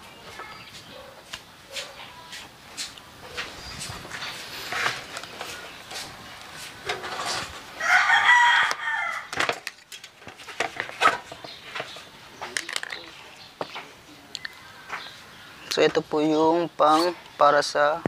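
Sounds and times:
rooster crowing: 7.8s - 9.4s.

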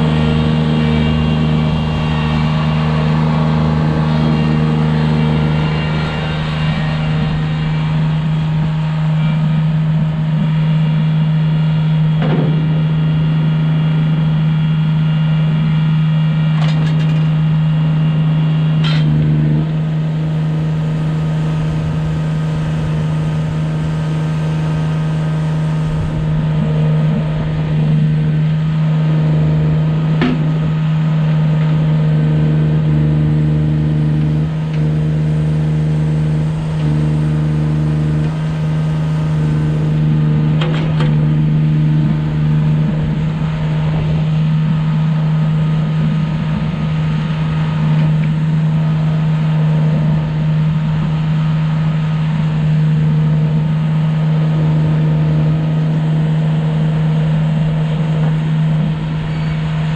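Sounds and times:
backhoe loader engine running: 0.0s - 59.9s
brief machine knocks: 12.2s - 12.8s.

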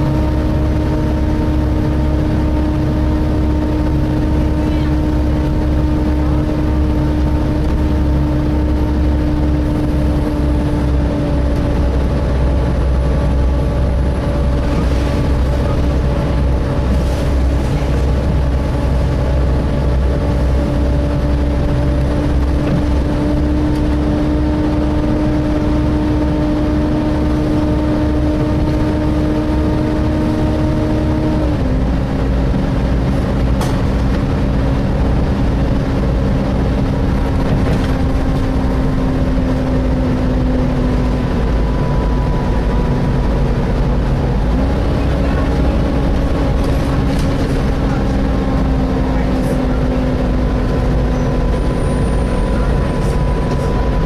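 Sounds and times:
engine and road rumble: 0.0s - 54.0s
engine cooling fan whining: 0.0s - 54.0s.

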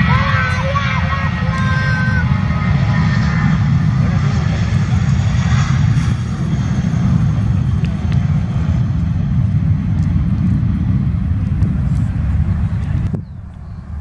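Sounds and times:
jet engines roaring at takeoff: 0.0s - 14.0s.

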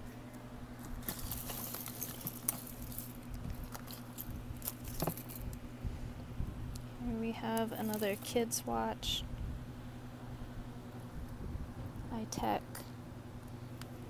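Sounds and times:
jewelry clicking and jangling in a tub: 1.1s - 5.4s.

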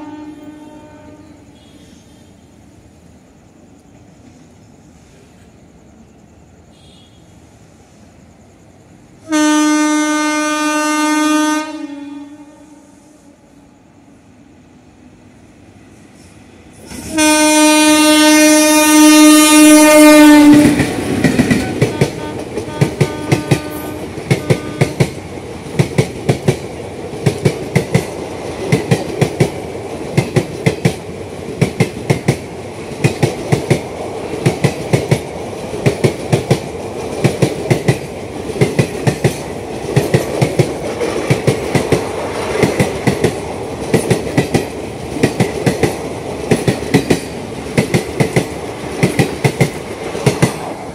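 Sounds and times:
locomotive horn blast: 0.0s - 2.4s, 6.7s - 7.4s, 9.2s - 13.7s, 17.0s - 20.8s, 21.6s - 25.1s
train coaches clattering on rails: 18.0s - 50.9s.

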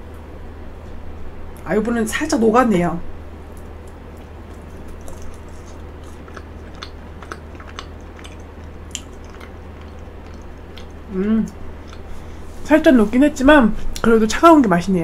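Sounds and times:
steady low hum: 0.0s - 15.0s
mouth clicks and smacks: 3.5s - 12.1s
person chewing: 3.5s - 12.6s.

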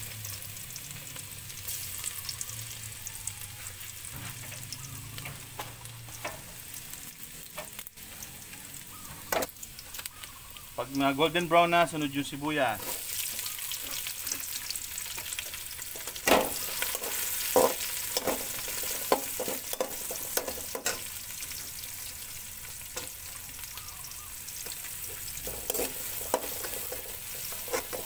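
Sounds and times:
onions sizzling in hot oil: 0.0s - 28.0s.

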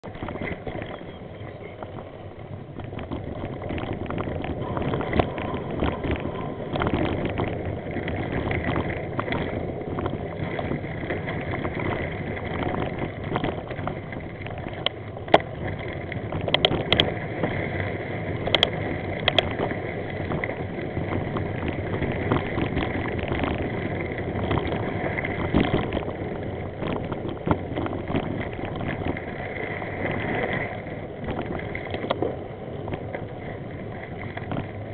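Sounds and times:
vehicle rumbling on dirt track: 0.0s - 34.9s
wind on microphone: 0.0s - 34.9s
knocks and rattles over bumps: 2.7s - 17.6s, 18.4s - 29.4s.

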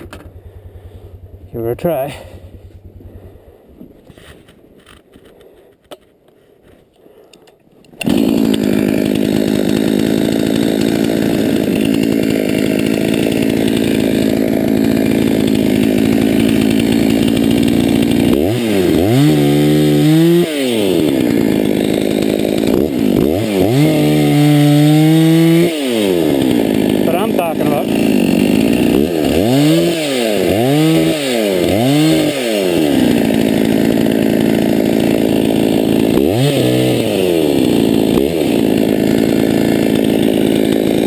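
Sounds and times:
chainsaw running: 0.0s - 5.5s, 7.3s - 41.0s
chainsaw cutting wood: 0.0s - 41.0s.

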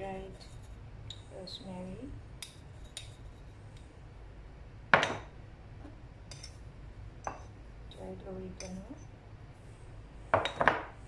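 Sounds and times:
metal spoon clinking against glass: 6.3s - 6.6s.

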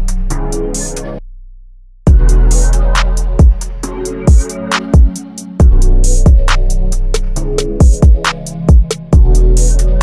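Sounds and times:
low bass line: 0.0s - 8.2s, 8.8s - 10.0s
deep kick drums: 2.1s - 2.4s, 3.4s - 3.6s, 5.0s - 6.6s, 7.8s - 9.4s.

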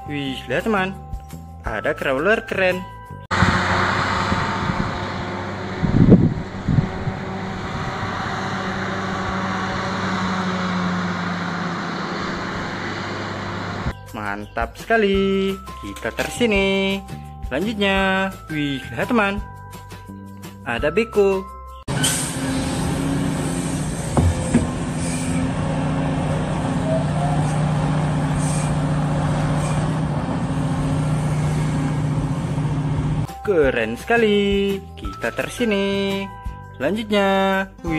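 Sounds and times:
low thumps: 3.3s - 9.9s, 23.8s - 27.4s
diesel engine humming: 3.3s - 13.9s, 21.9s - 33.3s
short knocks: 24.1s - 25.4s.

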